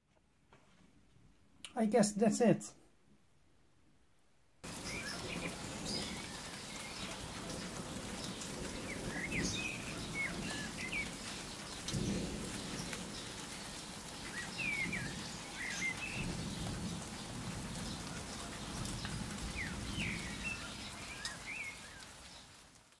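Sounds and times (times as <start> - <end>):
low thunder rumbles: 4.6 - 21.5
steady rain falling: 4.6 - 23.0
bird chirps: 4.8 - 7.2.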